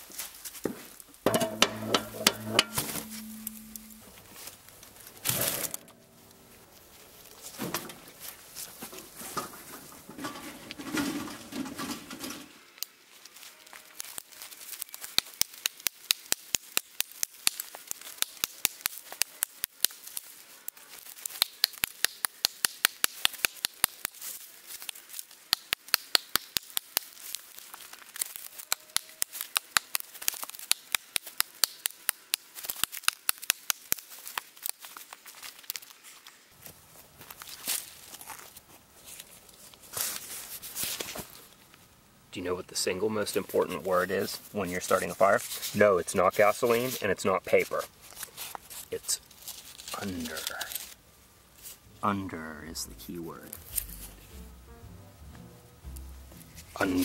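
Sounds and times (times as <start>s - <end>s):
rustling and handling: 0.0s - 12.6s, 34.0s - 41.9s, 43.3s - 51.9s, 53.0s - 54.6s, 55.9s - 57.0s
thud: 1.3s - 4.1s.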